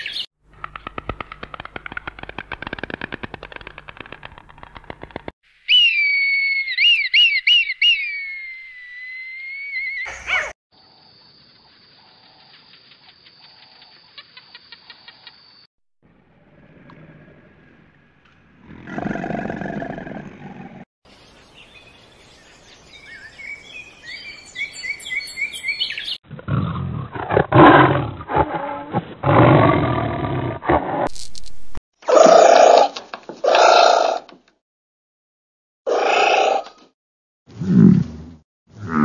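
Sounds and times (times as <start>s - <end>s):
loud animal roaring calls: 16.2s - 17.8s, 18.5s - 20.8s.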